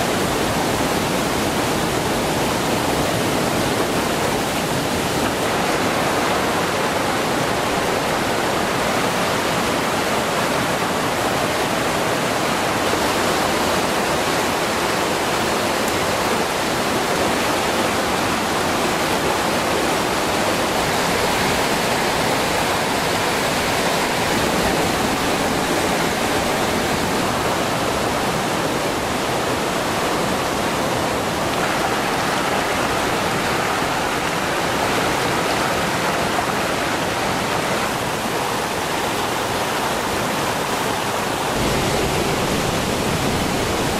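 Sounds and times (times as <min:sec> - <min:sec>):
river rushing over rocks: 0:00.0 - 0:43.9.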